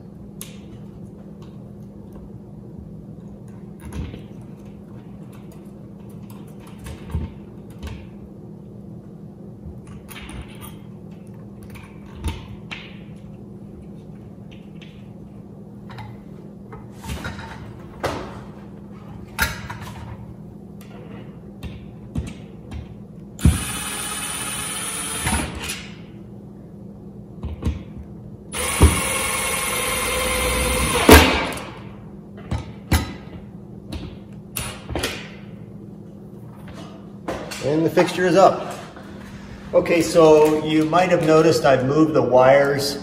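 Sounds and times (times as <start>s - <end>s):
cordless drill motor running: 23.4s - 25.5s, 28.6s - 31.1s.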